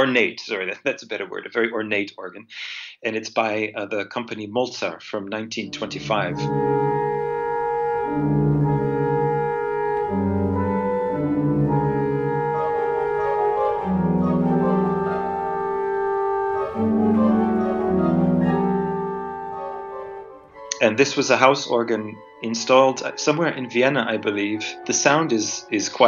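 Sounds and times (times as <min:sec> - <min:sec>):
pipe organ playing slow chords: 0:05.6 - 0:26.0.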